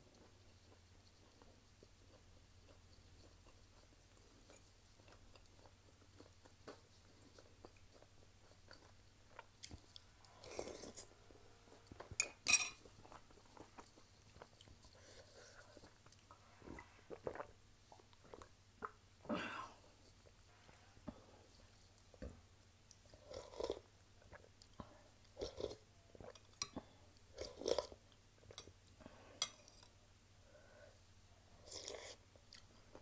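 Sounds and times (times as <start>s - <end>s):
chewing with wet mouth clicks: 0.1s - 11.0s
spoon clinking against glass bowl: 12.2s - 12.8s.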